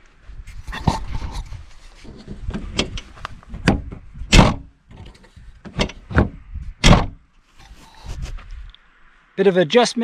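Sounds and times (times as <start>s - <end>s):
liftgate latch clicks and clunks: 2.5s - 7.2s.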